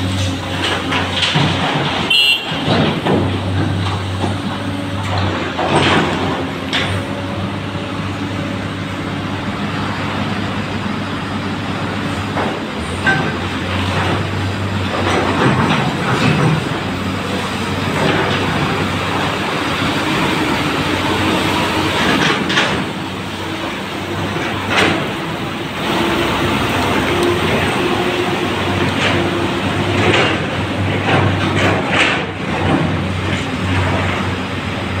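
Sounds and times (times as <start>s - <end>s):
heavy machinery engine drone: 0.0s - 35.0s.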